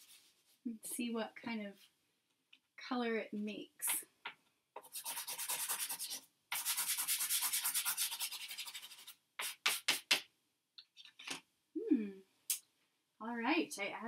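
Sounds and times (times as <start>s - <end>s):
pastel scribbling on paper: 4.8s - 10.2s.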